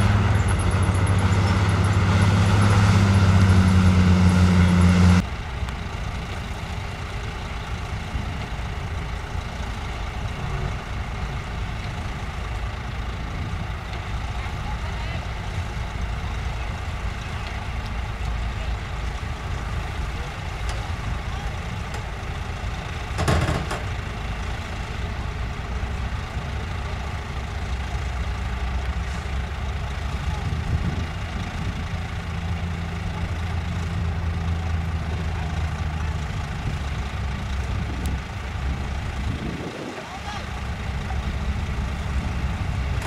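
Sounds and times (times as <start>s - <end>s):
diesel engine running: 0.0s - 43.0s.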